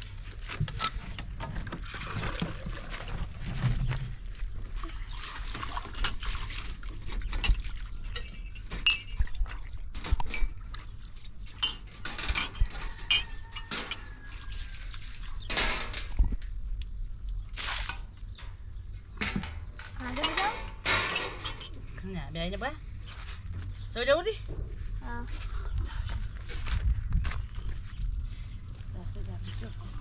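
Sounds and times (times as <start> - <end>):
liquid splashing: 4.7 - 8.2
dishes and utensils clinking: 7.3 - 9.3, 11.6 - 14.1, 19.2 - 21.8.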